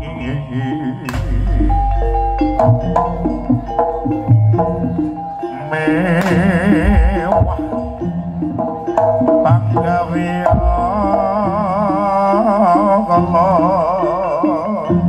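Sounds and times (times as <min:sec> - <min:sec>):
ringing pitched gamelan tones: 0:00.0 - 0:15.0
wavering vibrato melody: 0:00.0 - 0:15.0
hand drums beating: 0:01.1 - 0:12.6.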